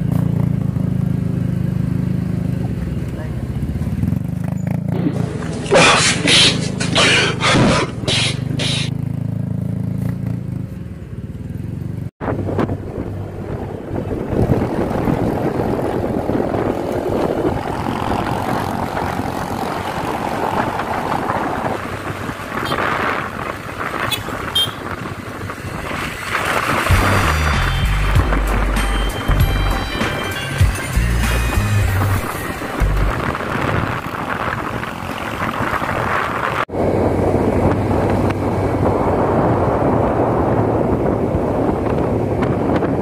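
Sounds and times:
motorcycle engine running: 0:00.0 - 0:43.0
wind rushing over microphone: 0:12.2 - 0:29.4, 0:31.9 - 0:43.0.

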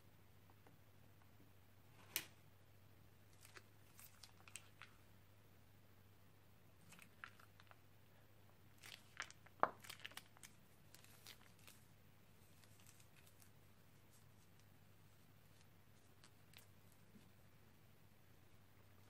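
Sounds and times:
plastic bag crinkling: 0:08.8 - 0:13.5.

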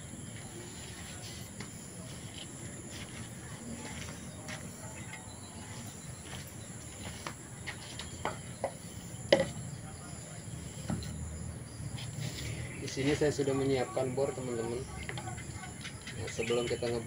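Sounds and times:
small tools knocking and clicking: 0:15.0 - 0:16.9.

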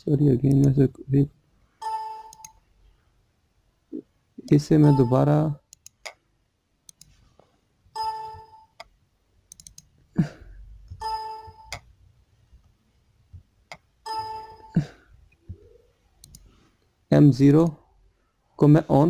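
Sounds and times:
computer alert chime: 0:04.8 - 0:05.4, 0:14.1 - 0:14.9
mouse clicks: 0:06.9 - 0:07.2, 0:08.8 - 0:09.9, 0:16.2 - 0:16.5.

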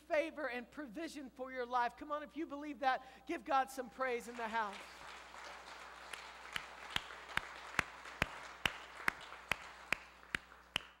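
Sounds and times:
faint background noise: 0:00.0 - 0:11.0
man clapping hands: 0:04.4 - 0:11.0.

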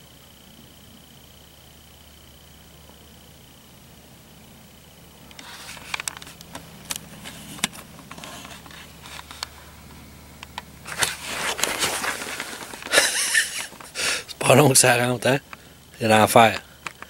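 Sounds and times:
crunching in crusty snow: 0:05.3 - 0:14.5.

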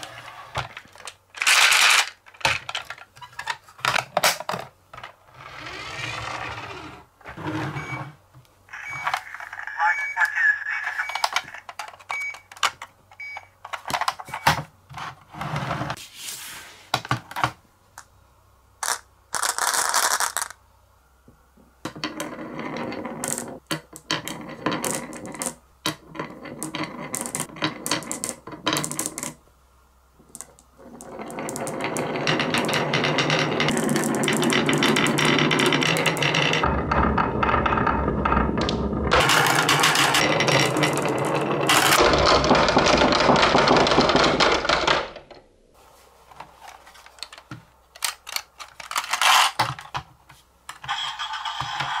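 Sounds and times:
marbles rolling on wood: 0:18.8 - 0:20.6, 0:21.9 - 0:29.4, 0:30.2 - 0:45.4.

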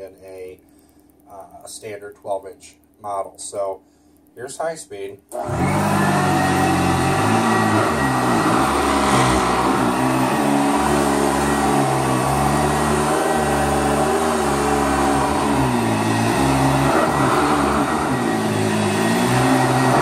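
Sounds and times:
vacuum cleaner on carpet: 0:05.3 - 0:20.0.

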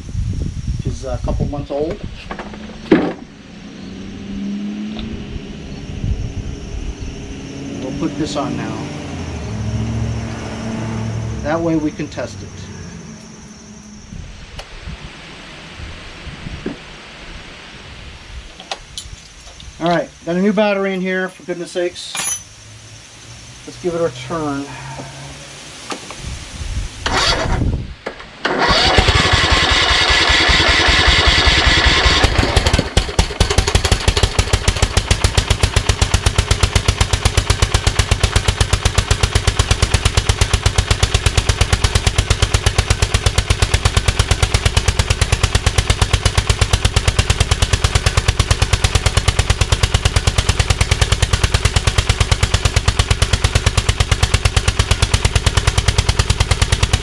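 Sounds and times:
lawn tractor engine running: 0:27.0 - 0:57.0
starter cranking: 0:27.0 - 0:57.0.

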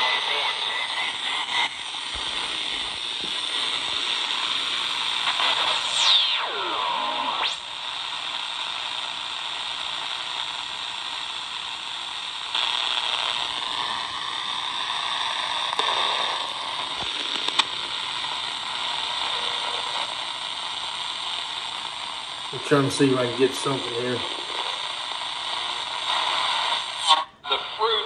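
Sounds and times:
radio static hissing: 0:00.0 - 0:28.0
sharp clicks: 0:17.0 - 0:17.7.

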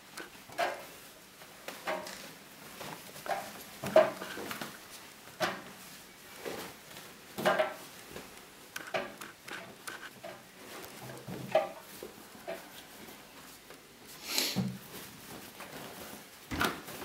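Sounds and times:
fabric rustling: 0:14.8 - 0:17.0.

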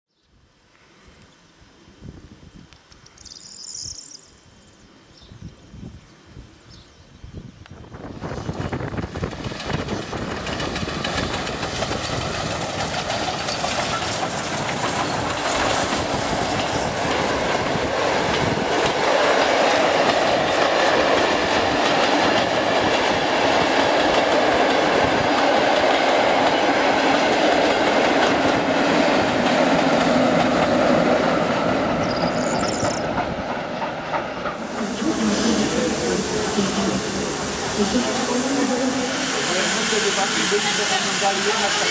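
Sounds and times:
steam train passing: 0:07.7 - 0:41.9
clickety-clack over rail joints: 0:08.3 - 0:34.9.

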